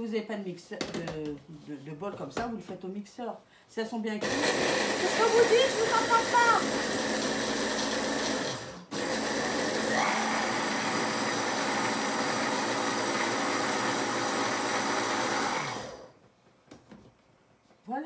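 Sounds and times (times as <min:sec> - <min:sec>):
electric hand blender running: 0:04.2 - 0:16.1.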